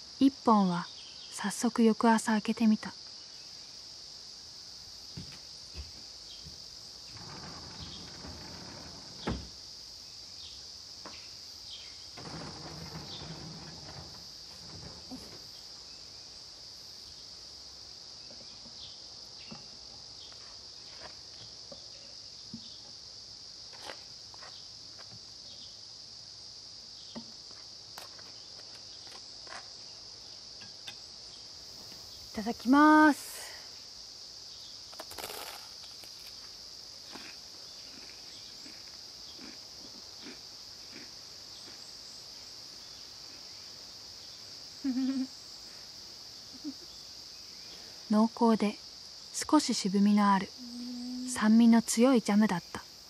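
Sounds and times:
insects chorus: 0.0s - 53.0s.

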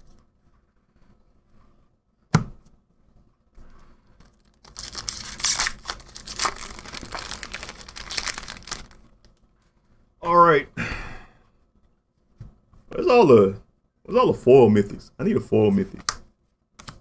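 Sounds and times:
foil wrapper crinkling and tearing: 4.2s - 9.1s.

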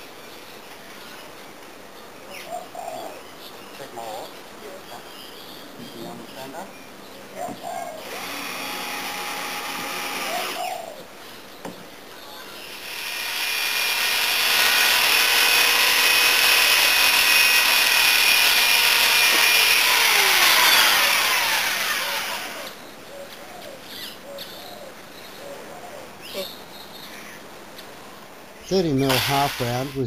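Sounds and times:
power tool whining: 8.0s - 10.7s, 12.8s - 22.8s, 29.0s - 30.0s.

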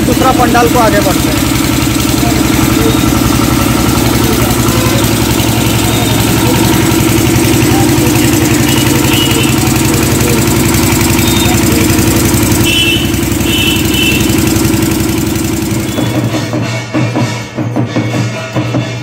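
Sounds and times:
motor running with fast pulse: 0.0s - 16.6s
short high tones: 2.4s - 10.1s.

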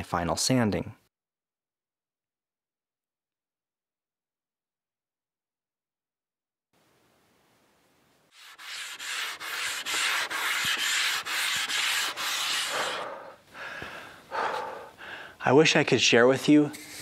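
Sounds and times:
sandpaper rubbing on wood: 8.3s - 13.3s, 16.5s - 17.0s.

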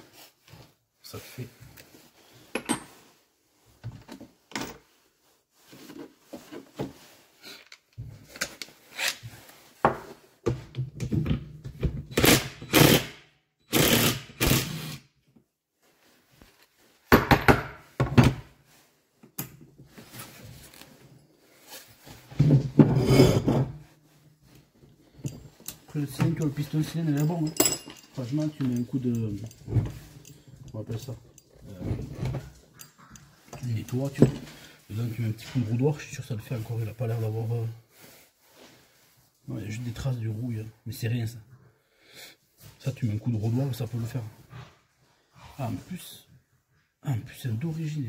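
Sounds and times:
metal parts knocking and clattering: 25.2s - 33.0s.

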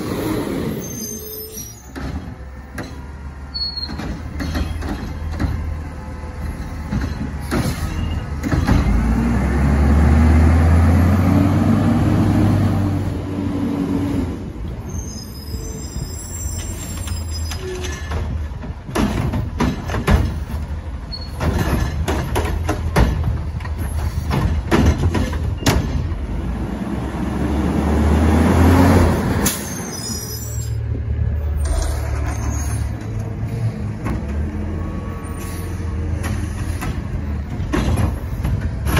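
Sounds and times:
truck driving: 0.0s - 38.9s
garbage truck engine revving: 8.4s - 14.5s, 26.2s - 29.5s
cart knocks and bangs: 17.8s - 26.2s, 36.2s - 38.9s.

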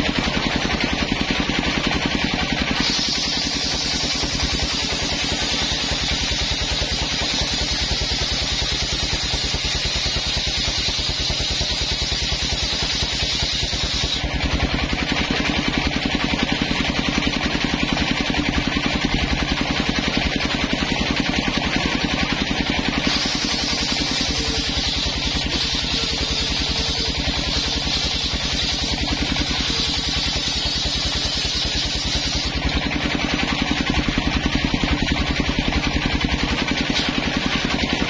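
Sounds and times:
circular saw blade cutting wood: 0.0s - 35.2s
engine running steadily: 0.0s - 38.0s.

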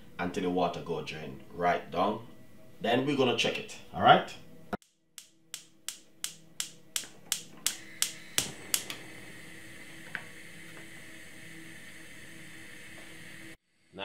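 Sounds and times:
gas igniter ticking: 5.2s - 13.6s
gas flame hissing: 5.2s - 14.0s.

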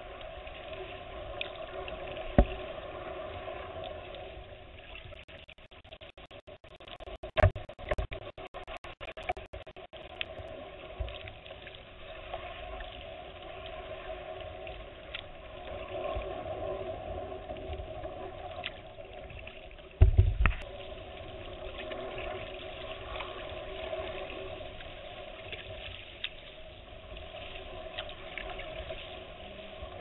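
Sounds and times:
water lapping around kayak hull: 0.0s - 30.0s
dull thump: 2.3s - 2.6s, 20.0s - 20.6s.

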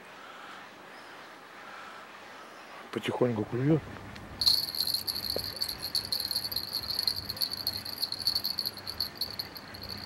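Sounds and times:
insect trilling: 4.4s - 10.0s.

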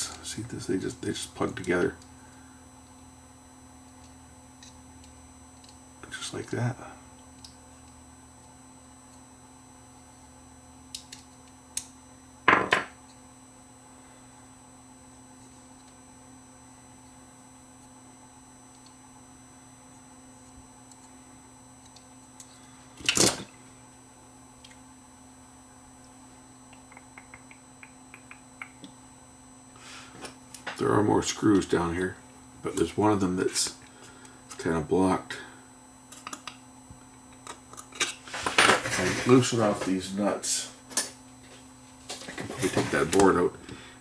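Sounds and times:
faint hum: 0.0s - 44.0s
small ticks: 4.0s - 5.8s, 7.1s - 8.0s, 10.9s - 12.0s, 18.7s - 19.0s, 21.8s - 22.6s, 26.7s - 29.0s.

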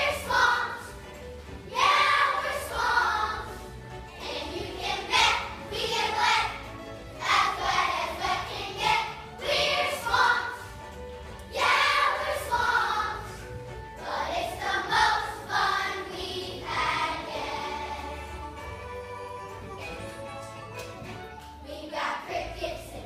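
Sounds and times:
children singing together: 0.0s - 1.1s, 1.7s - 10.8s, 11.5s - 19.2s
musical accompaniment: 0.0s - 23.0s.

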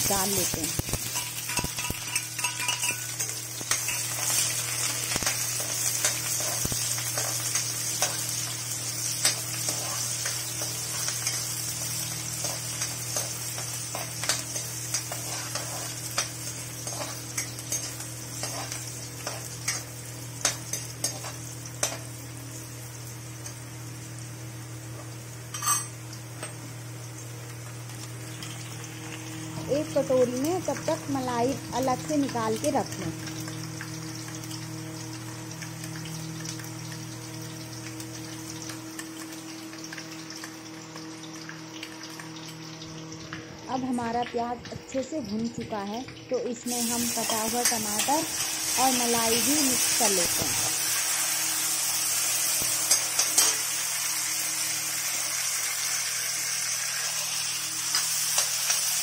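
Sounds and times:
onion sizzling in hot oil: 0.0s - 59.0s
steel ladle scraping a pan: 1.0s - 4.5s.

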